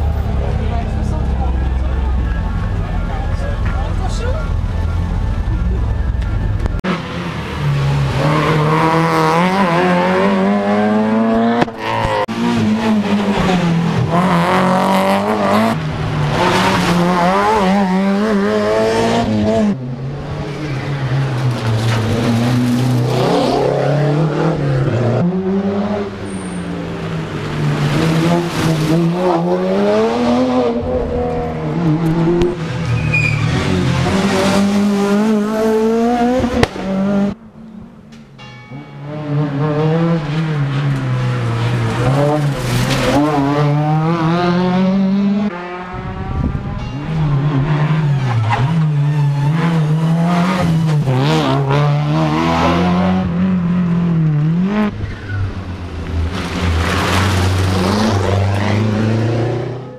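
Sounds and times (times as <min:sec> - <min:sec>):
rally car engines revving: 0:00.0 - 0:38.0, 0:38.7 - 0:59.9.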